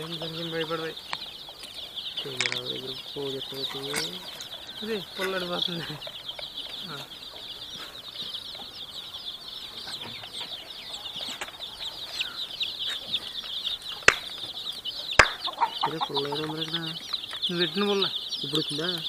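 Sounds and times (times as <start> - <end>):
baby chicks peeping: 0.0 - 19.0
sharp clicks: 1.1 - 2.7.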